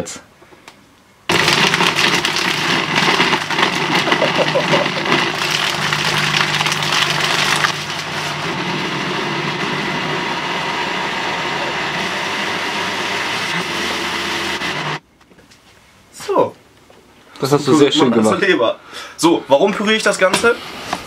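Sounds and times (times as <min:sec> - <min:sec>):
blender running: 0:01.3 - 0:15.0.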